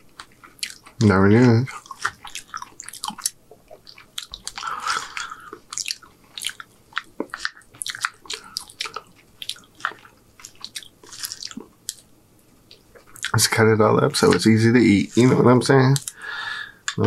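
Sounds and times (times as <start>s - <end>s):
chewing with wet mouth clicks: 0.0s - 1.1s, 1.7s - 13.5s, 15.1s - 16.2s.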